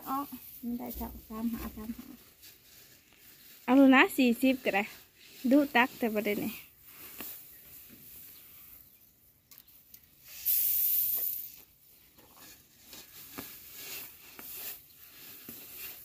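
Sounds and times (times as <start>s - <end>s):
plastic sack rustling: 0.0s - 8.6s, 12.2s - 16.0s
grain pouring into sack: 12.5s - 16.0s.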